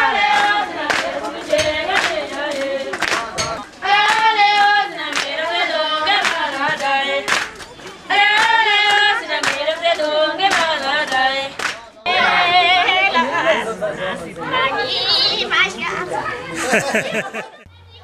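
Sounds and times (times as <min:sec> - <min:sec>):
women singing together: 0:00.0 - 0:13.5.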